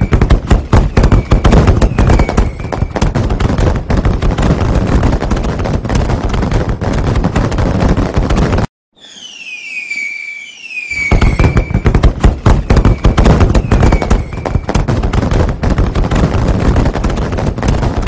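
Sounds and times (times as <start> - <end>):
firecrackers popping: 0.0 - 18.0
whistling tone falling in pitch: 8.9 - 11.8.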